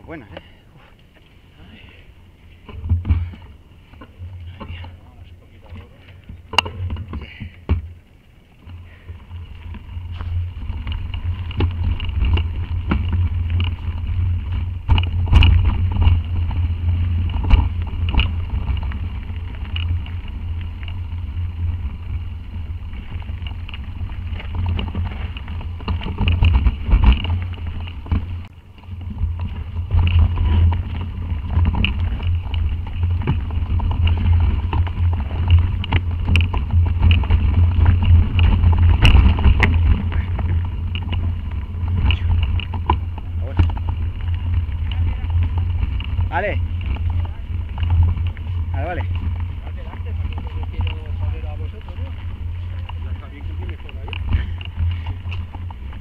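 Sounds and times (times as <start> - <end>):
bike knocking and rattling: 0.0 - 56.0
wind rumble on microphone: 1.7 - 56.0.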